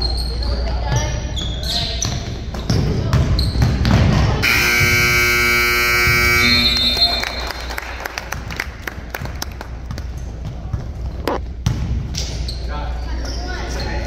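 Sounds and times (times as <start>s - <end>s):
basketball bouncing on court: 2.0s - 6.6s
gym noise: 2.6s - 7.2s
scoreboard buzzer tone: 4.4s - 7.2s.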